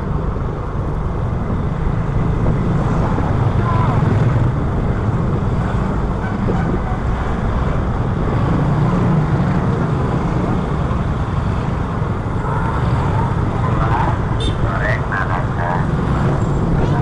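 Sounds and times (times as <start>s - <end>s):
motorcycle engines running: 0.0s - 17.0s
road noise: 0.0s - 17.0s.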